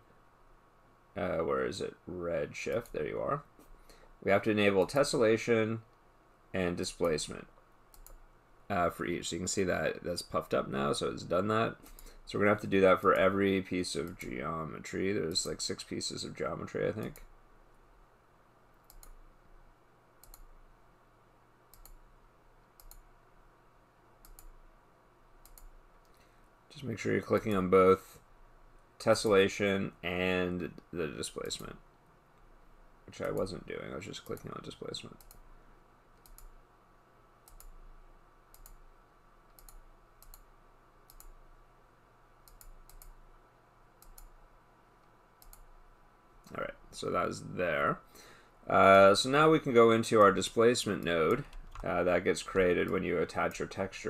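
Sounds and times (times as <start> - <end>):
computer mouse clicking: 7.9 - 8.2, 18.8 - 19.2, 20.2 - 20.5, 21.7 - 22.0, 22.8 - 23.1, 24.2 - 24.6, 25.4 - 26.3, 35.2 - 35.4, 36.2 - 36.5, 37.4 - 37.8, 38.5 - 38.8, 39.5 - 40.5, 41.1 - 41.4, 42.4 - 43.2, 44.0 - 44.3, 45.0 - 45.7.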